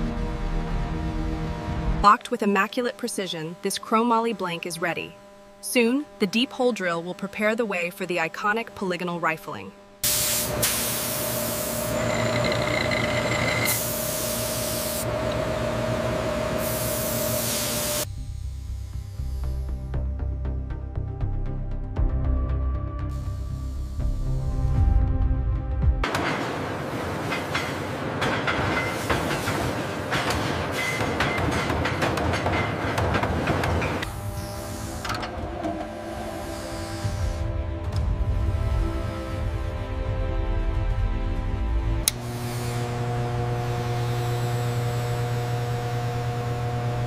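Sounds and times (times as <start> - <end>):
machine hum with steady tone: 0.0 - 20.6, 23.0 - 24.9, 26.0 - 40.5, 42.0 - 47.0
coolant spray hissing: 10.0 - 11.9, 16.6 - 18.1
drill boring into steel: 10.5 - 18.1.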